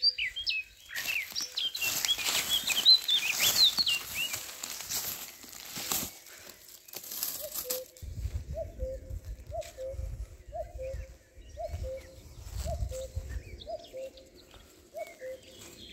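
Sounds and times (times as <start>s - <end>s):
small birds chirping: 0.0s - 15.9s
rustling crackling noise: 0.9s - 8.1s.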